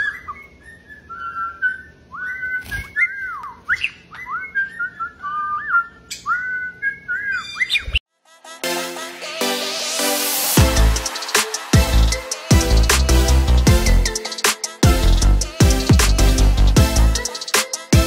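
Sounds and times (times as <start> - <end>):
parrot whistling a tune: 0.0 - 8.0.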